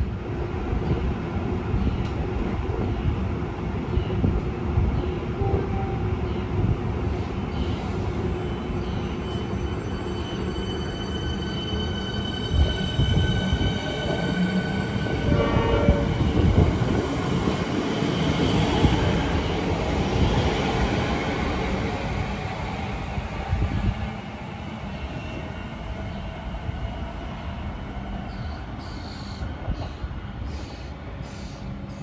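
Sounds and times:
wheels rumbling on rail: 0.0 - 32.0
electric train whine: 5.4 - 32.0.

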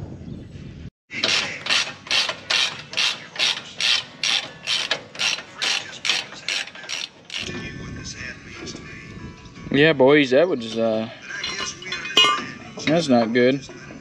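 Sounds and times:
ratchet wrench clicking: 1.2 - 7.5.

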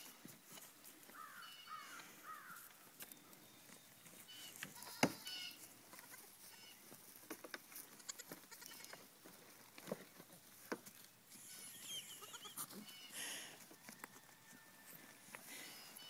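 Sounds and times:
goat kid bleats: 4.3 - 6.8, 7.9 - 9.1, 11.4 - 13.2.

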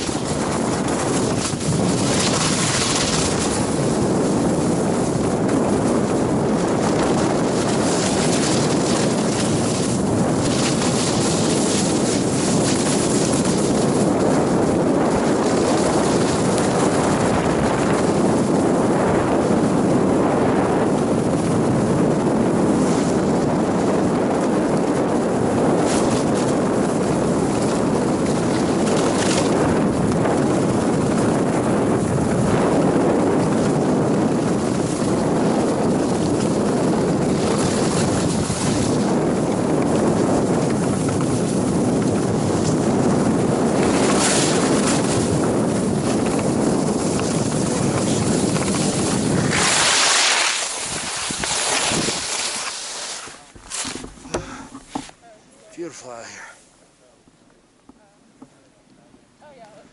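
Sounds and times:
wind buffeting microphone: 0.0 - 56.5
skis sliding over snow: 0.0 - 56.6.

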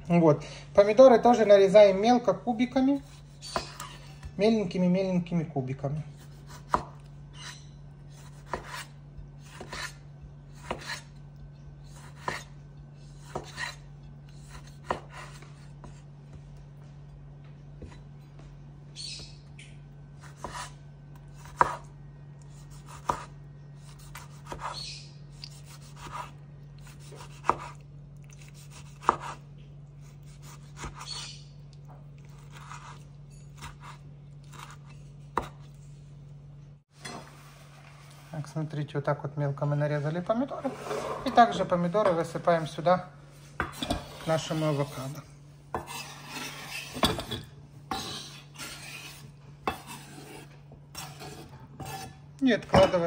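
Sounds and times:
knife scraping board: 2.7 - 4.3, 6.2 - 11.2, 11.8 - 16.1, 20.2 - 21.9, 22.5 - 24.8, 25.4 - 27.8, 28.4 - 29.4, 30.0 - 31.4, 32.3 - 35.8, 40.5 - 41.6, 43.5 - 52.2.

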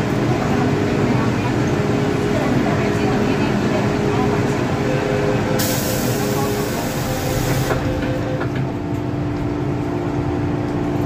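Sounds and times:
steady tone from train: 0.0 - 9.2
high hiss of train doors: 5.6 - 7.9.

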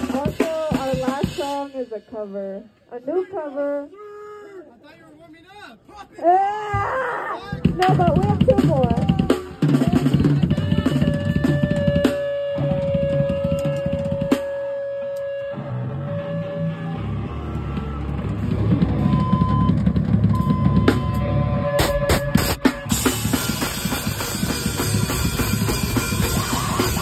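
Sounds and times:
electric guitar tones: 9.2 - 27.0.

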